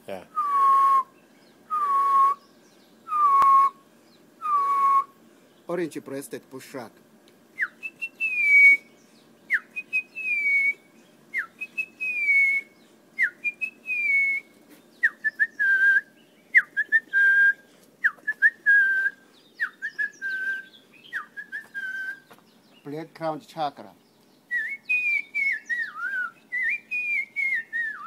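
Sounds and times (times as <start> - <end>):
person whistling bird call: 0.4 - 1.1, 1.7 - 2.4, 3.1 - 3.8, 4.4 - 5.1, 7.6 - 8.9, 9.5 - 10.8, 11.4 - 22.3, 24.5 - 28.0.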